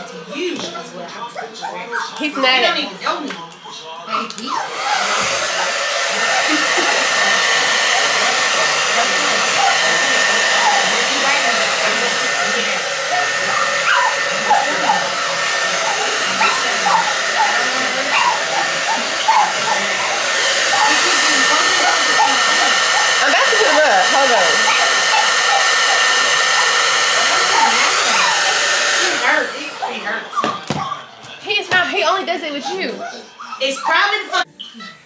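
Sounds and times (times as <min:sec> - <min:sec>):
hair dryer running: 0:04.3 - 0:30.8.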